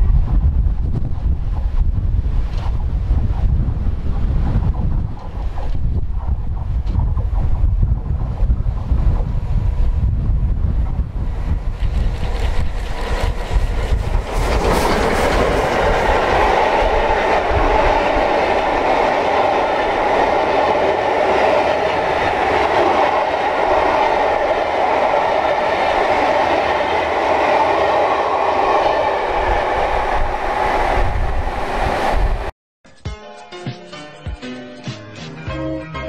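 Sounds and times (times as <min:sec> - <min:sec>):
train wheels on rails: 0:00.2 - 0:32.5.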